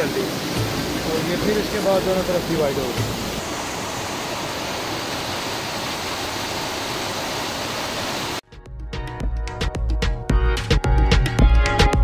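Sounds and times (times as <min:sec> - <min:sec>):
water rushing in a stream: 0:00.0 - 0:08.4
electronic music with a beat: 0:08.6 - 0:12.0.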